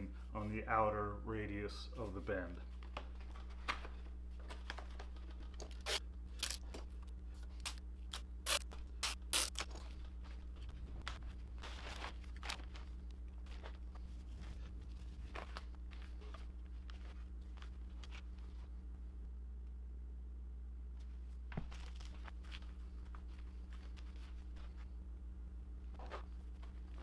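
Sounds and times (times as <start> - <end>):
steady low hum: 0.0 - 27.0
plastic sheeting crinkling: 9.6 - 18.7, 21.6 - 24.9.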